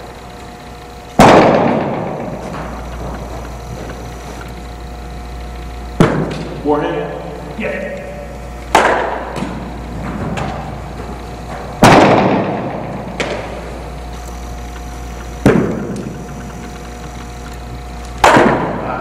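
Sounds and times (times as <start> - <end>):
sharp baseball impacts with echo: 1.2 - 3.2, 5.9 - 6.6, 8.7 - 13.8, 15.4 - 16.1, 18.1 - 19.0.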